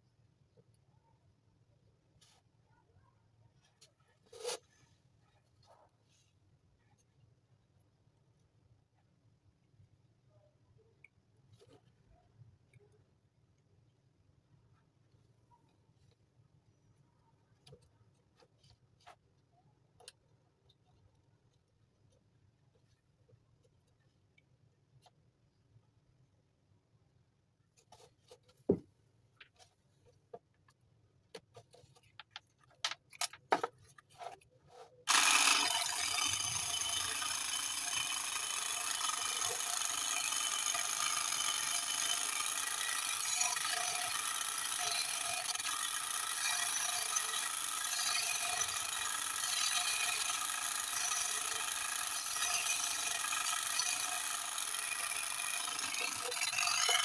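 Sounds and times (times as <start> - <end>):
small motor whining: 35.1 - 57.0.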